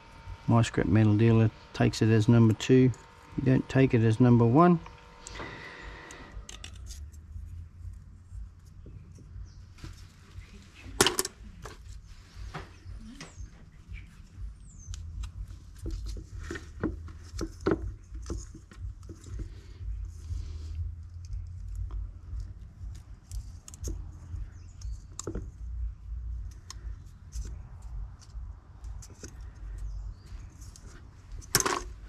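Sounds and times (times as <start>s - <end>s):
steady low rumble: 0.0s - 32.0s.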